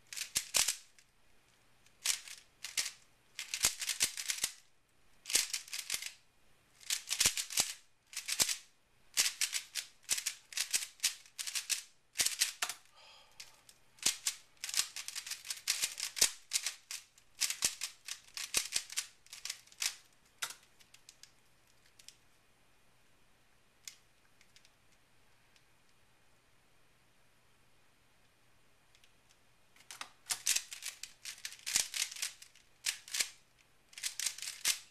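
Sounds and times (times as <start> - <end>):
puzzle cube clicking: 0.1 - 0.9, 1.9 - 4.6, 5.2 - 6.1, 6.8 - 8.6, 9.2 - 12.9, 14.0 - 22.2, 29.8 - 34.9.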